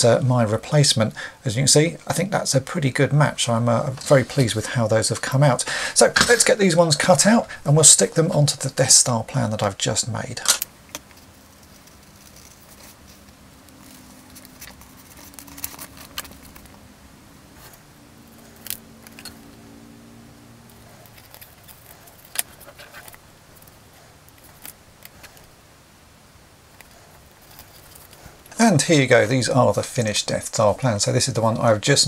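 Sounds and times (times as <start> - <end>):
scissors cutting paper: 10.5 - 16.8, 20.7 - 25.5.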